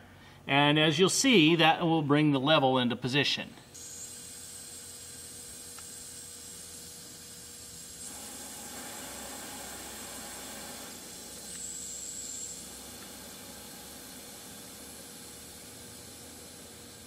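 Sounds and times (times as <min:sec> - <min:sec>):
air hissing from tyre valve: 0:08.0 - 0:17.0.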